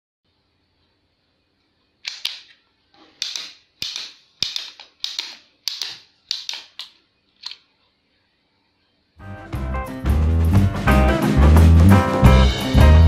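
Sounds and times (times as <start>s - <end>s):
toy pistol clacking: 2.0s - 2.6s, 3.2s - 7.6s.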